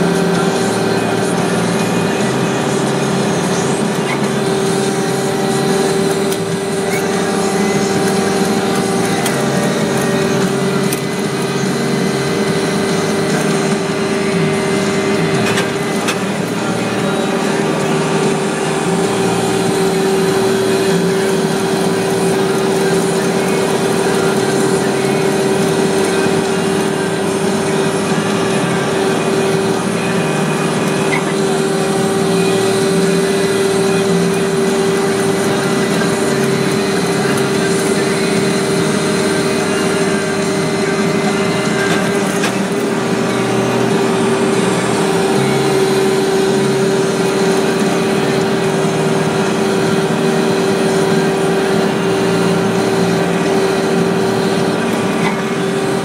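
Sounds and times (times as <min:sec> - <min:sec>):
machine droning: 0:00.0 - 0:56.0.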